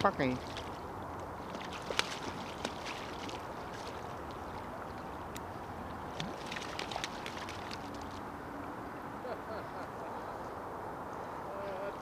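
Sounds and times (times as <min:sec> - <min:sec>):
small water splashes: 0:00.0 - 0:08.4
river water rushing: 0:00.0 - 0:09.2.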